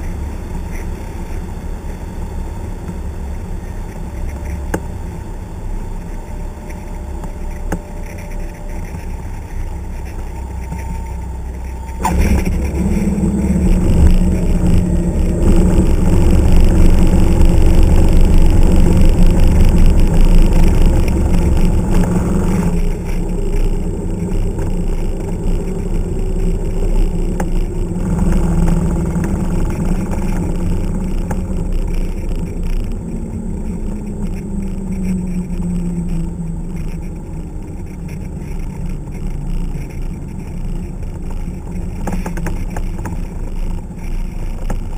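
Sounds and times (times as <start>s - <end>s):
light airplane engine and propeller: 0.0s - 44.9s.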